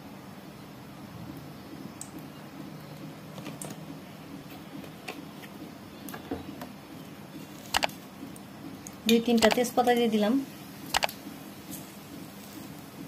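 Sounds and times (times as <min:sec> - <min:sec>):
oil crackling in a pan: 0:07.3 - 0:13.0.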